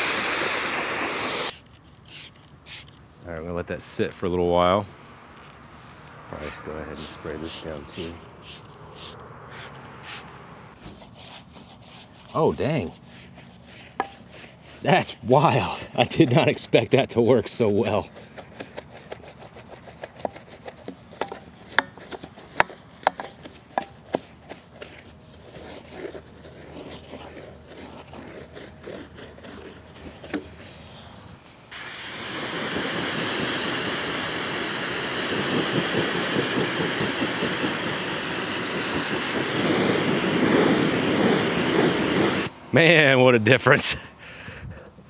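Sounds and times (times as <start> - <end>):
brush scrubbing a tyre: 0.0 - 2.9, 6.4 - 42.5
pressure washer spray hissing: 0.0 - 2.9, 6.4 - 10.3, 31.7 - 42.6.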